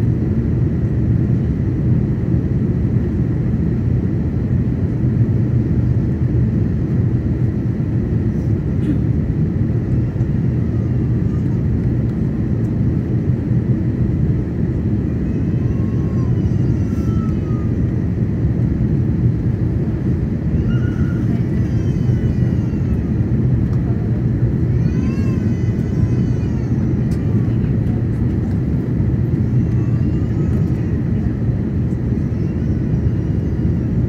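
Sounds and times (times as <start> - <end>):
airplane cabin rumble: 0.0 - 34.0
faint voices: 20.8 - 33.1.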